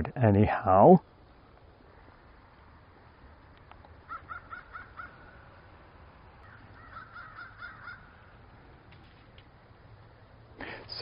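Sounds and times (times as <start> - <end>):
low outdoor background: 0.0 - 11.0
crow cawing: 4.0 - 5.6, 6.4 - 8.4.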